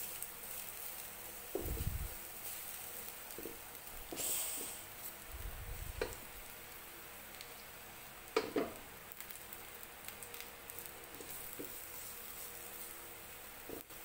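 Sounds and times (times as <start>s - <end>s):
garlic sizzling in oil: 0.0s - 14.0s
spatula scraping a wok: 11.1s - 13.0s.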